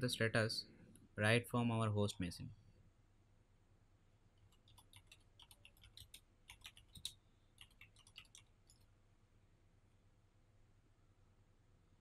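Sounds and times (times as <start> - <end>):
computer keyboard typing: 4.4 - 8.9.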